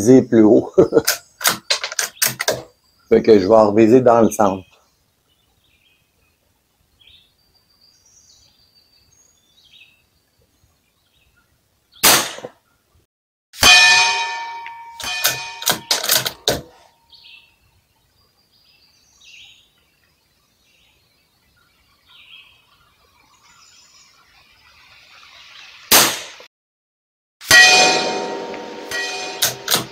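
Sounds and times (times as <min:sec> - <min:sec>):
faint birdsong: 0:00.0 - 0:13.1, 0:16.3 - 0:25.9
rifle shot: 0:12.0 - 0:12.5, 0:25.9 - 0:26.4, 0:28.9 - 0:29.9
steel target ringing: 0:13.6 - 0:16.7, 0:27.4 - 0:29.9.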